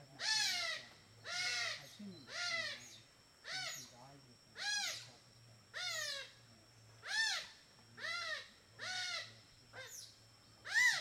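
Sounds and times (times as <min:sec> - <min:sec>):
faint low hum: 0:00.0 - 0:11.0
animal calling: 0:00.2 - 0:03.9, 0:07.0 - 0:11.0.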